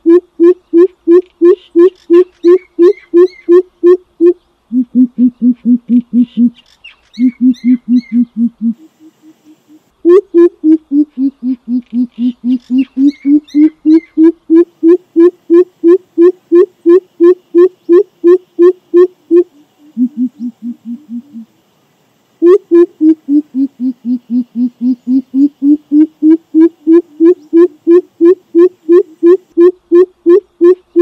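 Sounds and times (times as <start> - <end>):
bird deep hooting call: 7.2 - 21.5, 22.4 - 31.0.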